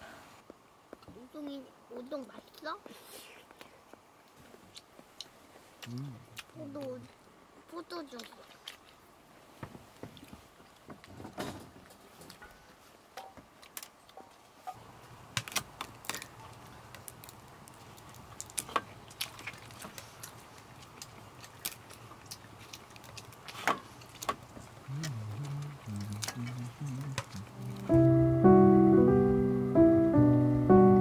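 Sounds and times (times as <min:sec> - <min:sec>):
faint low hum: 0:16.2 - 0:31.0.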